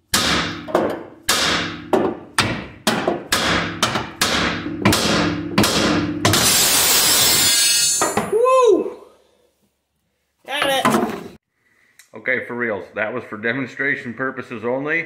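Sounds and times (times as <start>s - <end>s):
hammer striking metal: 0.1s - 8.3s.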